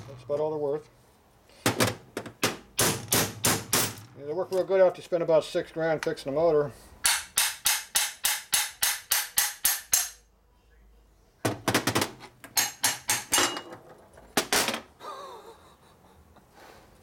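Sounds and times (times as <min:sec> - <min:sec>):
hammer tapping on metal: 0:07.0 - 0:10.2.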